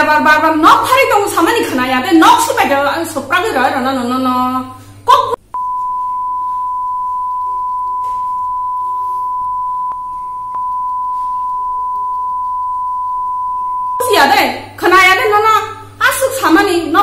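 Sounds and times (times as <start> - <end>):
steady high electronic beep: 5.6 - 14.0.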